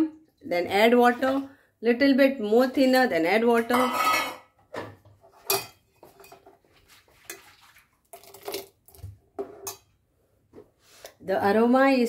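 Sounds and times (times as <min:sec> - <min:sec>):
ladle clinking and scraping pot: 0:03.7 - 0:08.5, 0:09.4 - 0:09.9.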